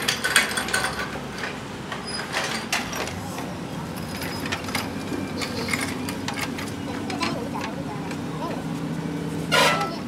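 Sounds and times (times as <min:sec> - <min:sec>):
metal clanks and knocks: 0:00.0 - 0:03.2, 0:09.5 - 0:10.0
workshop hum: 0:00.0 - 0:10.0.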